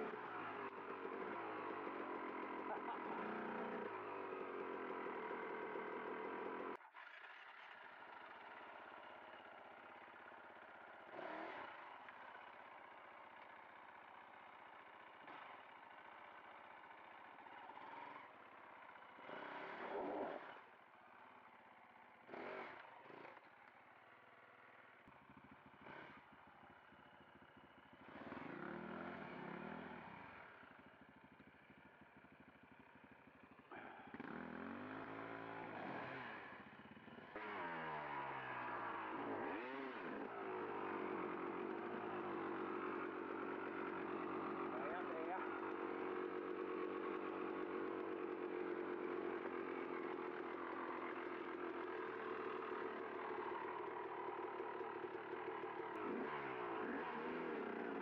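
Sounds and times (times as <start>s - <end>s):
dirt bike engine revving: 0.0s - 7.8s, 11.0s - 12.0s, 17.4s - 20.7s, 22.2s - 23.5s, 25.4s - 26.4s, 28.0s - 30.6s, 33.7s - 58.0s.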